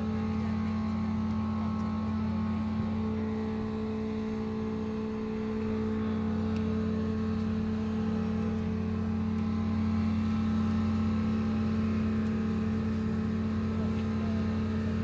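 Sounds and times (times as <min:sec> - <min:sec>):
large engine droning: 0:00.0 - 0:15.0.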